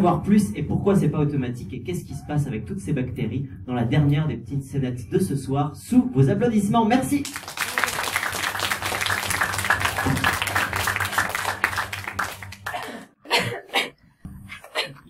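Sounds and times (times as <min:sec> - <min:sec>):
audience applauding: 0:07.2 - 0:13.1.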